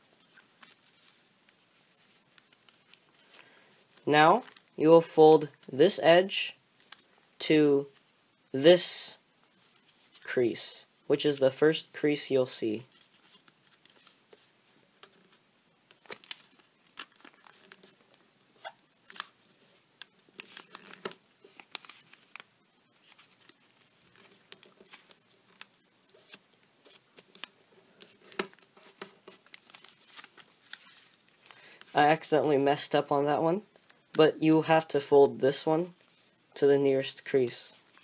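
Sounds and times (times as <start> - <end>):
paper crackling as creased: 0.1 - 3.4, 12.9 - 31.9, 37.4 - 38.0
paper crinkling: 0.1 - 4.8, 12.8 - 32.0, 37.0 - 38.0.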